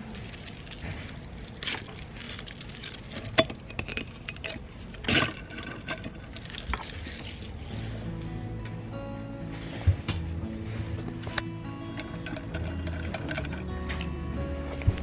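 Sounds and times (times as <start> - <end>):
plastic clicks and rustling: 0.1 - 7.5.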